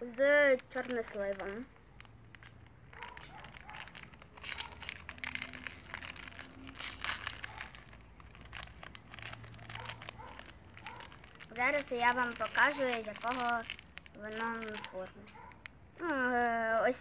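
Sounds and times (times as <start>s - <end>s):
plastic wrapper crinkling: 0.0s - 17.0s.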